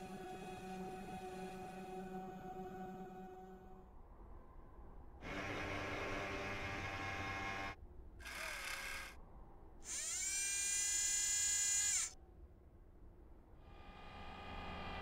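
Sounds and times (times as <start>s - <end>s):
servo motors whirring: 8.2s - 9.2s, 9.9s - 12.2s.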